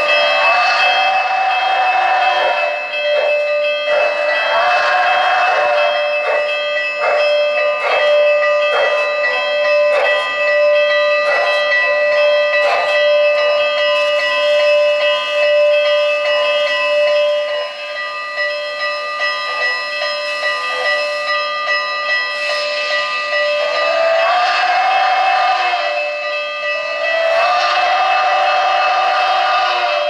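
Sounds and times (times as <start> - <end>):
steam hiss: 0.0 - 2.6
locomotive bell ringing: 0.0 - 30.0.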